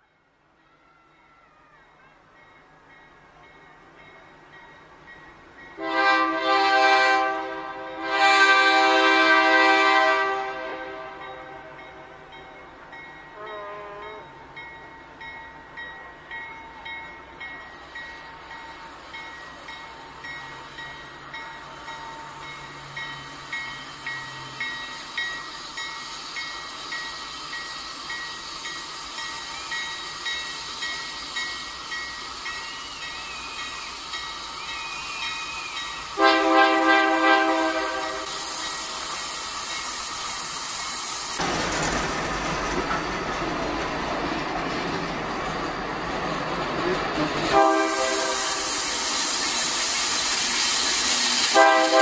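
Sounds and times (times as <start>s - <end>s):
train rumbling and hissing: 0.0s - 52.0s
train bell ringing: 0.6s - 6.0s, 11.0s - 41.2s
locomotive horn blast: 5.8s - 12.3s, 13.4s - 14.3s, 36.2s - 38.5s, 47.2s - 48.8s, 51.4s - 52.0s.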